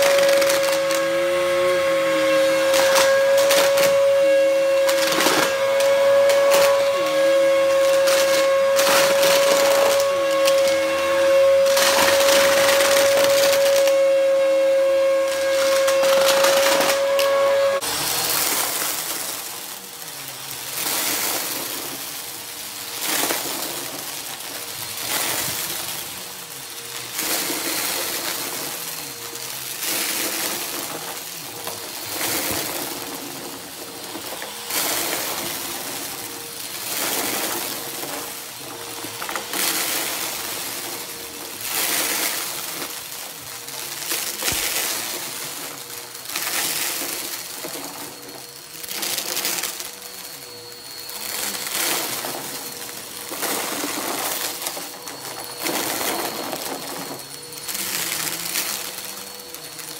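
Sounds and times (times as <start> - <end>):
vacuum cleaner running: 0.0 - 59.9
debris crackling through vacuum: 20.6 - 59.9.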